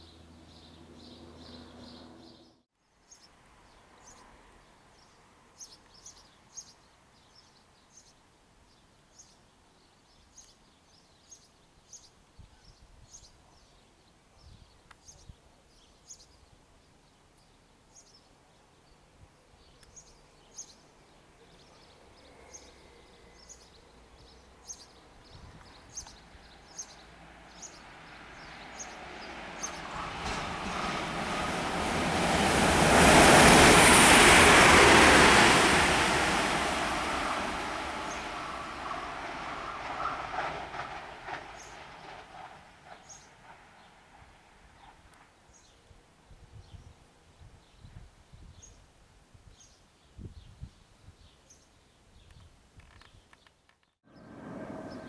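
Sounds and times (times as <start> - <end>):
propeller plane droning overhead: 0.0 - 2.6, 26.5 - 45.5, 54.1 - 55.0
electric train rushing: 28.8 - 43.8, 54.1 - 55.0.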